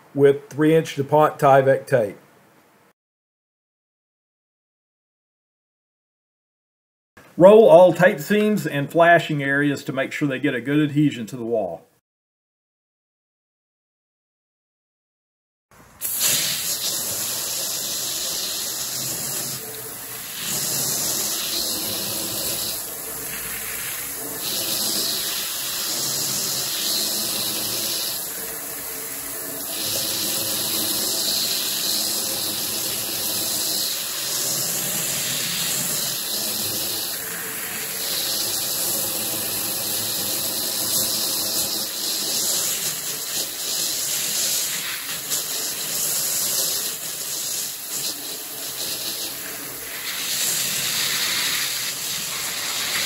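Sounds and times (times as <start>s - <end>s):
hose spray hitting window: 16.0s - 19.6s.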